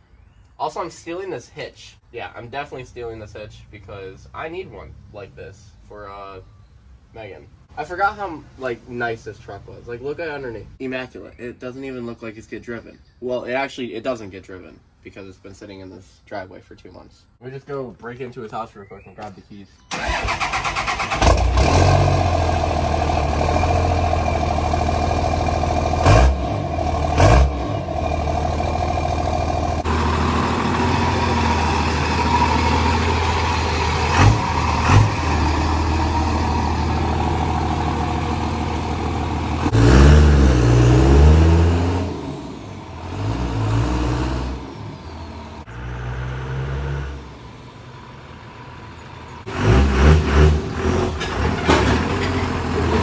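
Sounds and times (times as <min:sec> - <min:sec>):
diesel engine idling and revving: 0:19.9 - 0:53.0.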